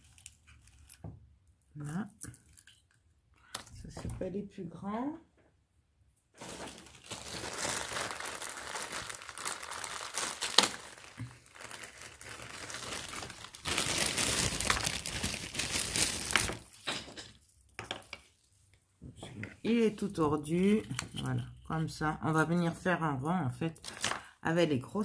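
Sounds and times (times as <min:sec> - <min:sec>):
packaging crinkling and rustling: 0:00.0 - 0:01.1, 0:06.4 - 0:16.9, 0:23.8 - 0:24.3.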